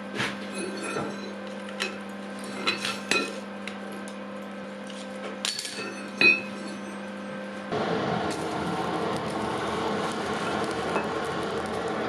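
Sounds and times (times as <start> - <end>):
iron clinking on an anvil: 0.6 - 3.4, 5.4 - 7.1.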